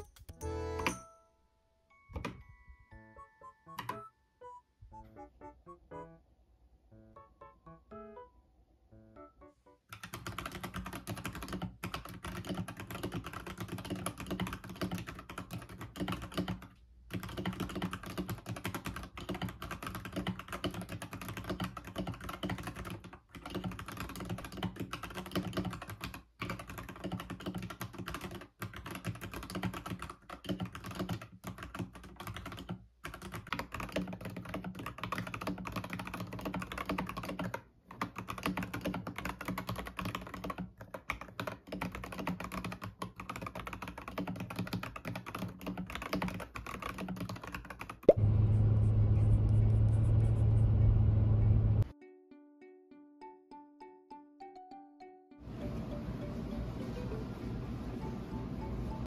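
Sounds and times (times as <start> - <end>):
mechanical keyboard typing: 9.9 - 48.2.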